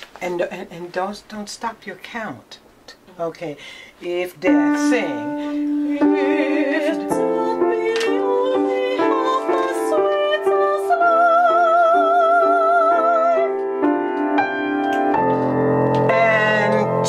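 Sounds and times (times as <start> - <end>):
woman singing operatically: 4.0 - 13.6, 16.1 - 17.0
piano block chords: 4.4 - 17.0.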